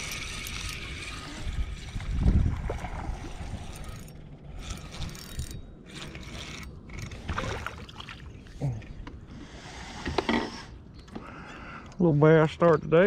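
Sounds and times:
fishing reel whirring and clicking: 0.0s - 7.4s.

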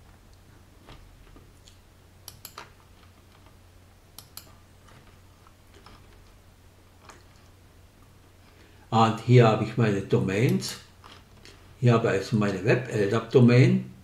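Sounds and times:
low steady hum: 0.0s - 14.0s
computer mouse clicking: 2.3s - 2.7s, 4.2s - 4.6s.

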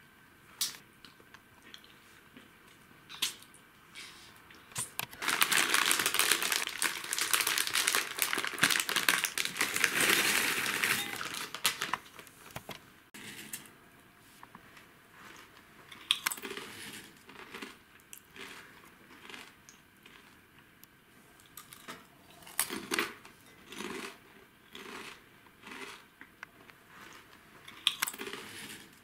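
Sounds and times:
plastic packet crinkling: 5.0s - 12.3s.

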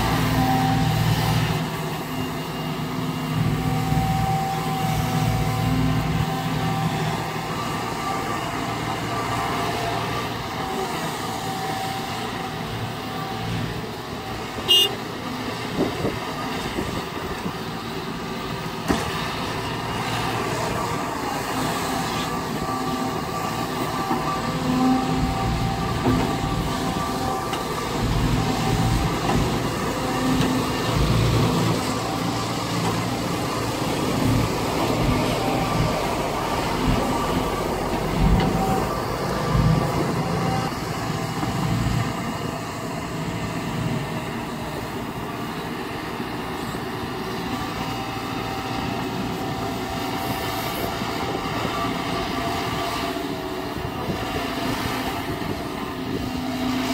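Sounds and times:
excavator engine and hydraulics: 0.0s - 56.9s.

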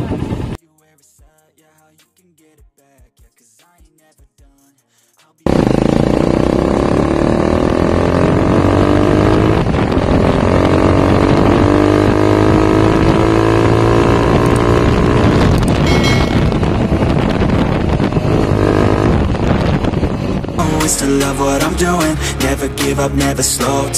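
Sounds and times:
motorcycle engine accelerating: 5.5s - 22.4s.

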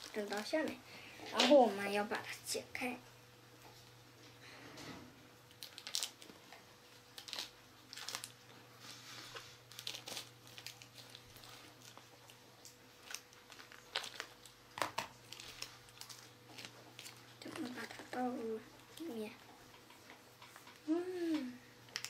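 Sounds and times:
foil sachets crinkling: 0.0s - 0.8s, 5.5s - 19.3s.

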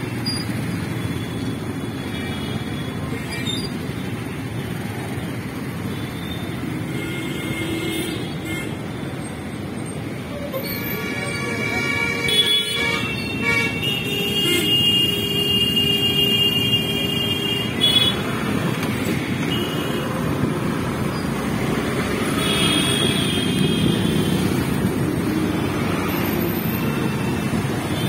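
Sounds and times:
road traffic: 0.0s - 28.0s
vehicle horns honking: 10.6s - 18.4s.

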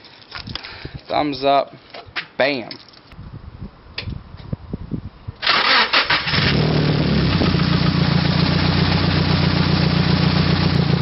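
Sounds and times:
car engine starting and idling: 5.4s - 11.0s.

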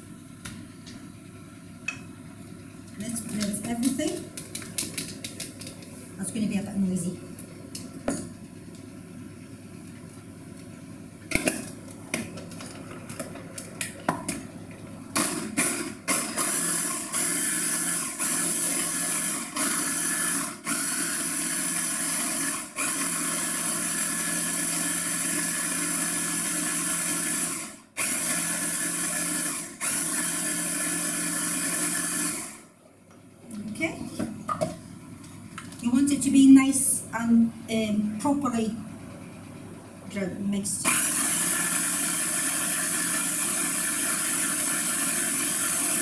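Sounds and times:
electric hand blender chopping: 15.2s - 32.6s, 40.8s - 46.0s.

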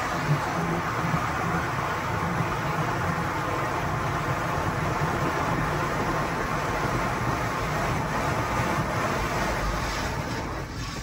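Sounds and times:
car wash rushing roar: 0.0s - 11.0s.

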